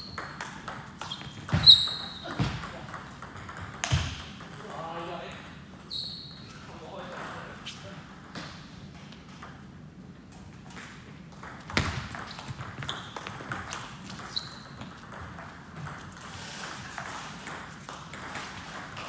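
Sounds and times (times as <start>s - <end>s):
shoes squeaking on wooden floor: 1.0s - 2.6s, 12.2s - 15.0s.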